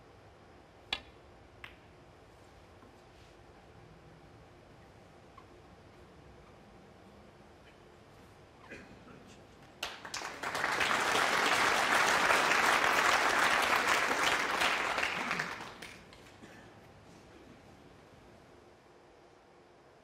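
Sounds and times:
audience applauding: 9.8s - 16.4s.

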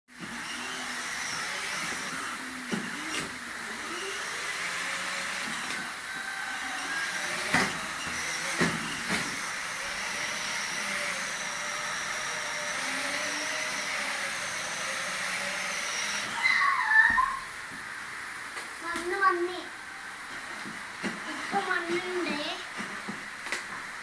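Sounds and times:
electric toy motor whirring: 0.1s - 17.4s.

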